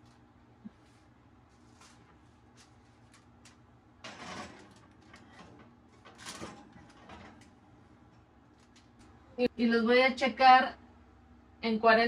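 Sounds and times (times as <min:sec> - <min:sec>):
baking dish scraping on oven rack: 0:04.0 - 0:07.5.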